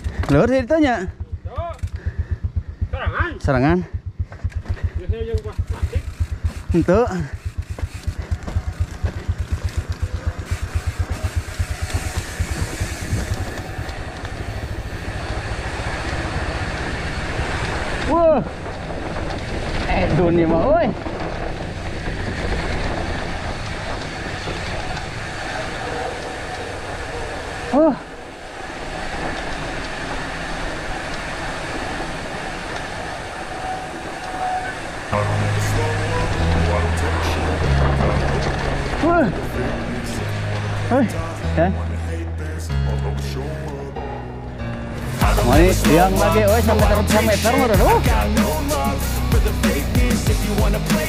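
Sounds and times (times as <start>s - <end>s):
wind noise on microphone: 0.0s - 35.2s
bike tyres and frame rattling: 0.0s - 41.7s
low rapid throbbing: 0.0s - 51.0s
faint bike clicks: 1.2s - 3.0s, 3.9s - 15.0s.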